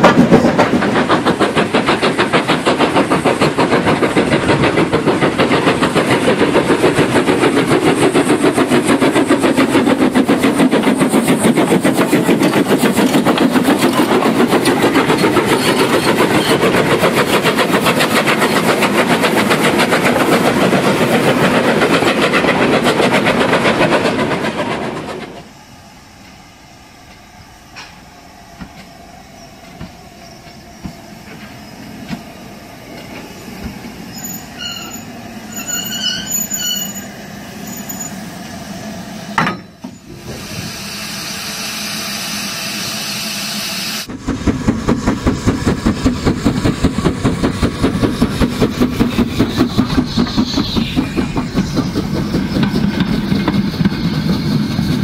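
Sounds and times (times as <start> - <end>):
model trains clattering and humming: 0.0 - 25.5, 44.0 - 55.0
rapid even train clatter: 0.0 - 25.5, 27.0 - 37.0, 44.0 - 55.0.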